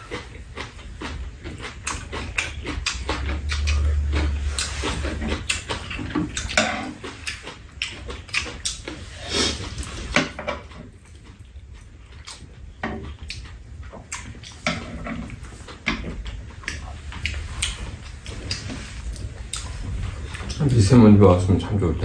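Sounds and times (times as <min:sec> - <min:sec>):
utensils clicking against bowls: 0:00.0 - 0:09.0
chewing and slurping: 0:00.0 - 0:21.8.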